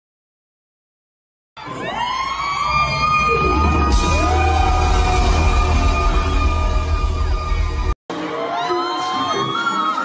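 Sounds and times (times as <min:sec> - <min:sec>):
crowd cheering: 0:01.6 - 0:10.0
live band playing: 0:03.1 - 0:08.0.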